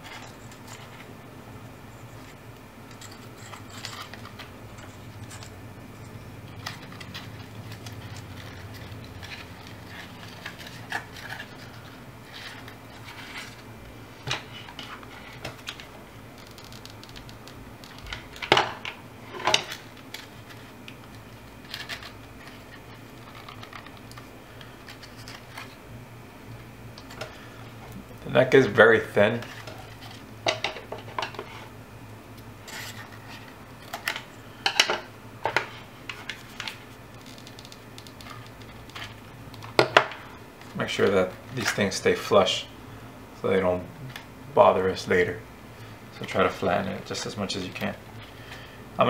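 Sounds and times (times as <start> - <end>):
faint low hum: 0.0 - 49.0
paper and cardboard rustling: 6.6 - 15.9.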